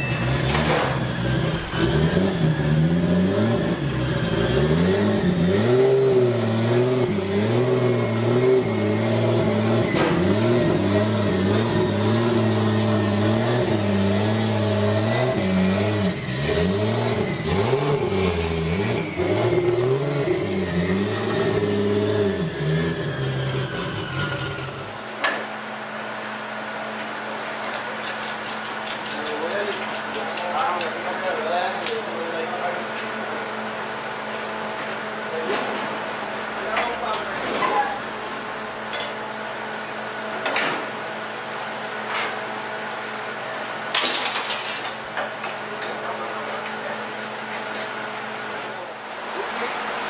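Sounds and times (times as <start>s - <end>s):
car engine revving: 0.1s - 25.0s.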